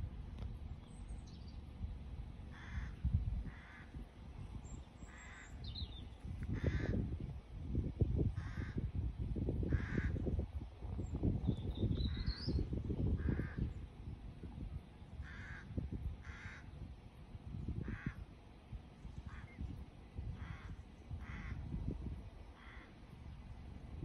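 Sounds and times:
low gusty rumble: 0.0s - 24.0s
crow cawing: 2.5s - 4.0s, 5.1s - 5.6s, 6.5s - 7.0s, 8.4s - 8.8s, 9.7s - 10.2s, 13.2s - 13.7s, 15.2s - 16.7s, 17.8s - 18.2s, 20.4s - 21.7s, 22.6s - 23.0s.

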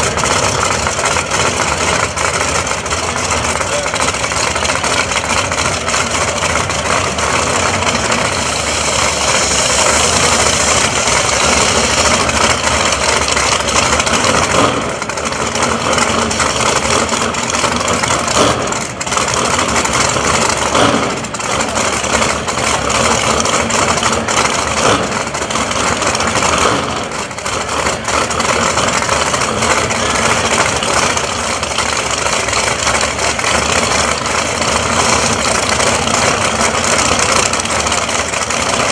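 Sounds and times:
race car engines idling loudly: 0.0s - 38.9s.

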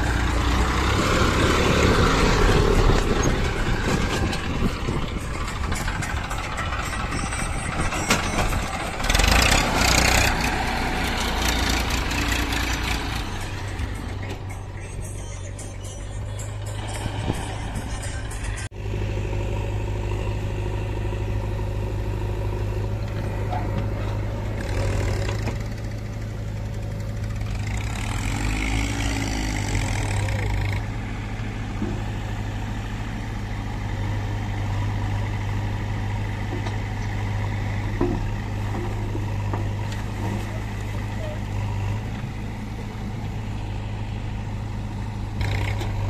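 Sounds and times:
tractor diesel engine droning: 0.0s - 46.0s.

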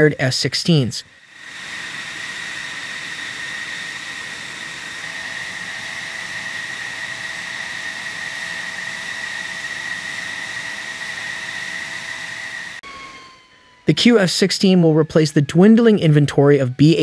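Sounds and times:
jet engine idling: 0.0s - 17.0s.

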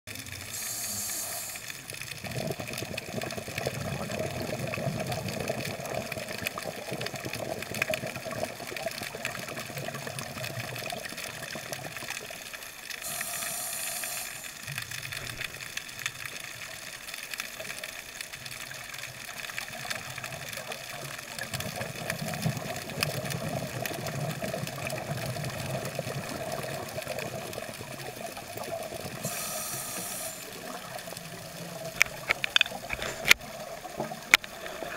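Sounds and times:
short high hissing bursts: 0.5s - 1.8s, 13.0s - 14.7s, 29.2s - 30.6s.

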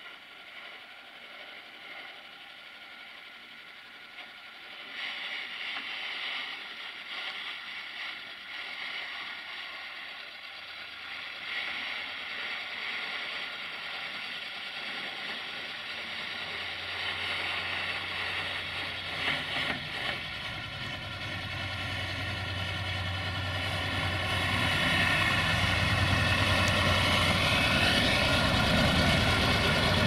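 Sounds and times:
plow blade scraping road: 4.7s - 30.0s
tractor diesel engine: 8.8s - 30.0s.

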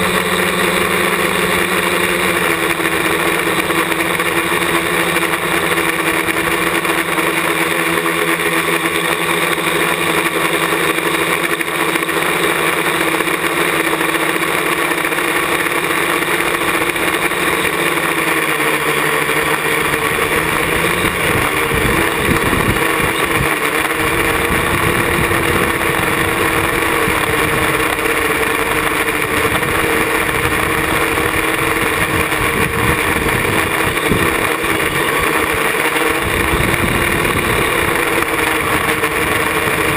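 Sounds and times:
drone propellers whining: 0.0s - 39.9s
wind buffeting microphone: 20.2s - 27.9s, 29.2s - 39.9s.

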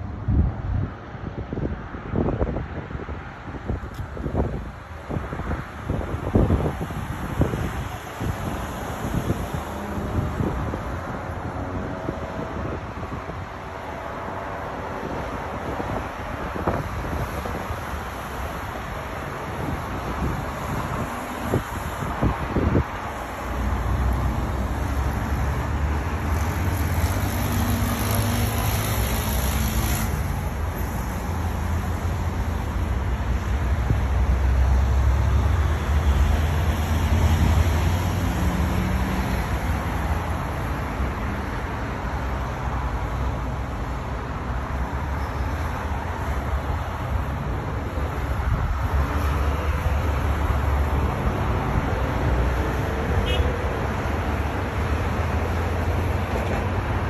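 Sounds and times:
road traffic: 0.0s - 57.0s
wind buffeting microphone: 0.1s - 34.6s.

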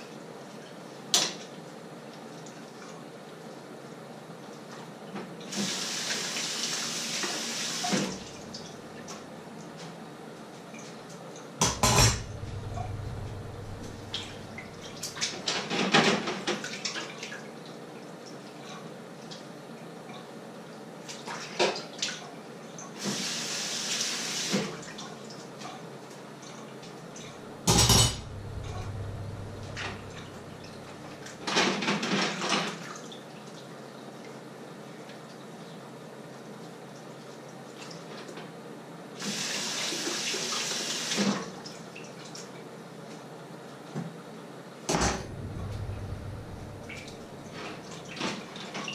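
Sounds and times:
dishes clattering in a sink: 11.6s - 16.7s, 27.2s - 32.7s.

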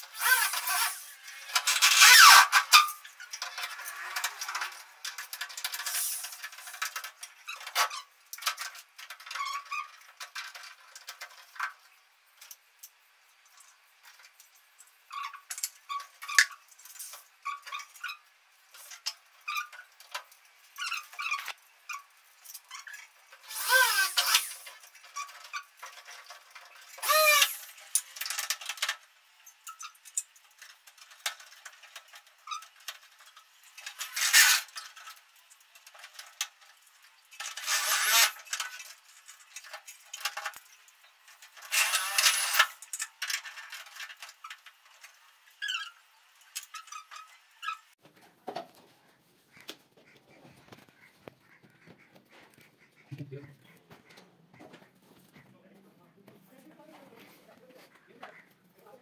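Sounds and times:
short wavering squeaks: 0.1s - 3.2s, 20.8s - 25.7s, 26.9s - 27.8s, 37.6s - 38.5s, 41.7s - 42.8s, 45.6s - 48.0s.

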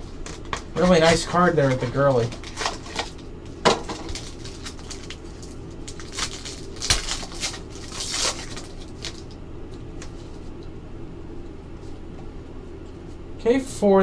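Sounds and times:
low room hum: 0.0s - 14.0s
foil wrapper tearing and crinkling: 0.3s - 9.4s.

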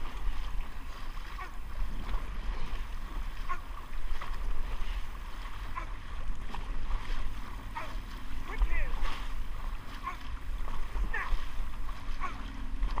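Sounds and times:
paddles splashing in water: 0.0s - 13.0s
wind buffeting microphone: 0.0s - 13.0s.

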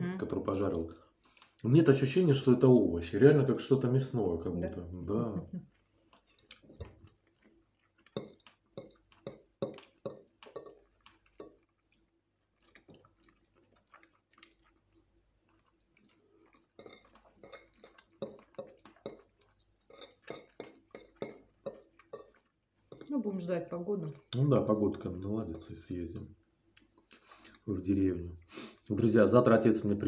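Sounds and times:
chewing and mouth smacks: 1.0s - 1.7s, 5.6s - 23.1s, 26.6s - 27.7s.

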